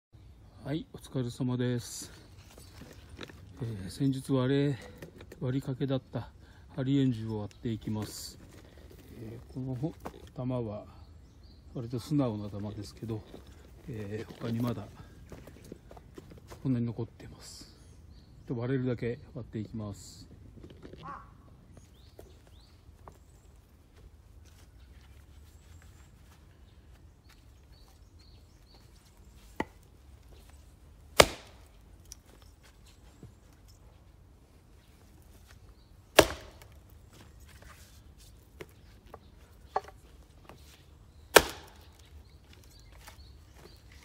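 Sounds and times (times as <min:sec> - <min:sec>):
axe striking wood: 0:31.1 - 0:31.7, 0:36.1 - 0:36.8, 0:41.3 - 0:42.0.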